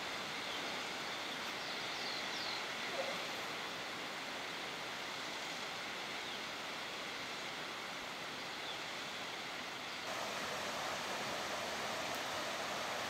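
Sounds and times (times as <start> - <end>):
waterfall rushing: 10.1 - 13.0.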